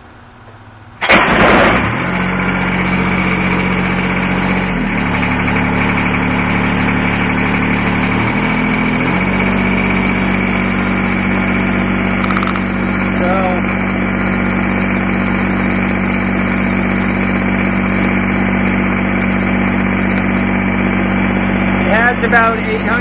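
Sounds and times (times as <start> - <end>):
diesel engine idling: 1.0 - 23.0
diesel engine starting: 1.0 - 23.0.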